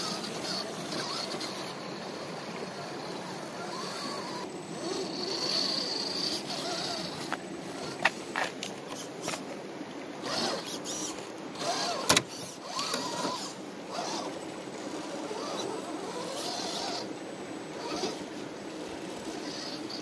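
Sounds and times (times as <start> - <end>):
toy car motor whining: 0.0 - 8.1, 8.9 - 9.4, 10.2 - 18.3, 19.0 - 20.0.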